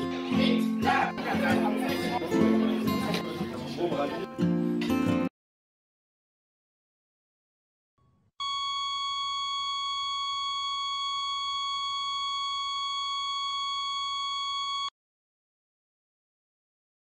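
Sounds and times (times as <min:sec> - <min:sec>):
continuous electronic beep: 0:08.4 - 0:14.9.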